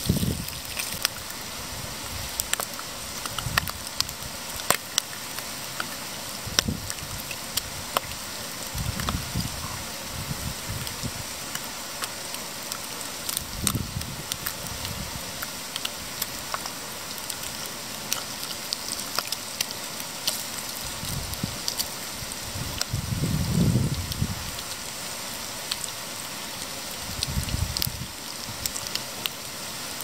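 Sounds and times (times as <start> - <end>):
bacon sizzling in a frying pan: 0.0 - 30.0.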